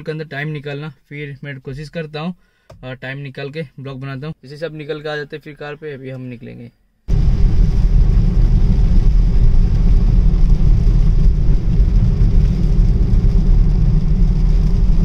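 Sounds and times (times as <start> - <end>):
car road and engine rumble: 7.1 - 15.0
tyre hiss on wet road: 7.1 - 15.0.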